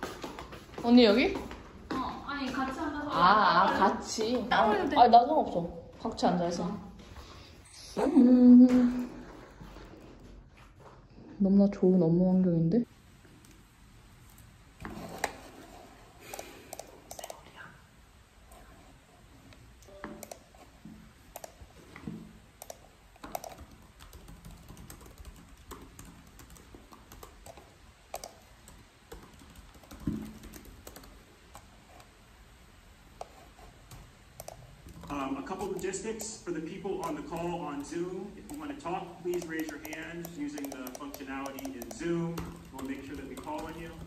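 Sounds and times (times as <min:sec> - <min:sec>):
computer mouse clicks: 0:16.2 - 0:17.6, 0:19.5 - 0:32.1, 0:33.2 - 0:36.4, 0:37.0 - 0:44.0
keyboard typing: 0:16.2 - 0:17.6, 0:19.8 - 0:32.1, 0:33.2 - 0:44.0.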